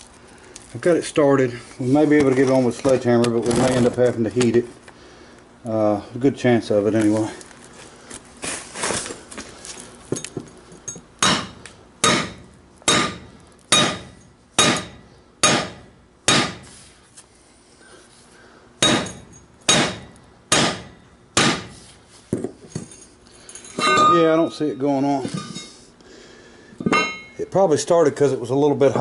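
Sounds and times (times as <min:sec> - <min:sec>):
sledgehammer striking steel: 0:11.2 - 0:16.7, 0:18.8 - 0:21.8, 0:23.8 - 0:25.7, 0:26.8 - 0:27.4.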